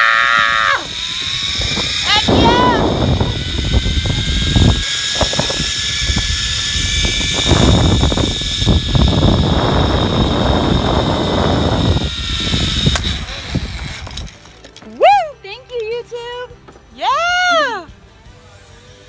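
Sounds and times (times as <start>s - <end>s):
wind rumble on microphone: 0.0s - 14.4s
zip line trolley whine: 0.0s - 15.0s.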